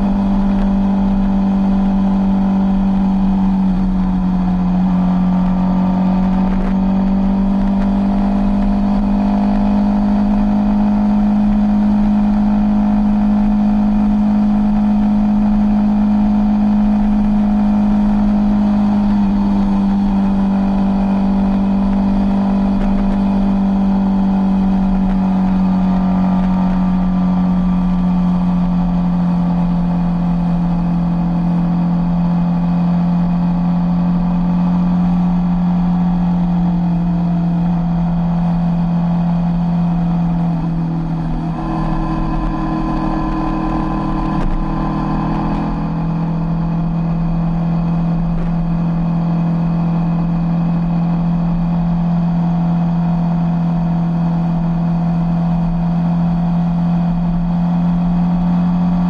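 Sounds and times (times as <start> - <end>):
motorcycle engine cruising: 0.0 - 59.0.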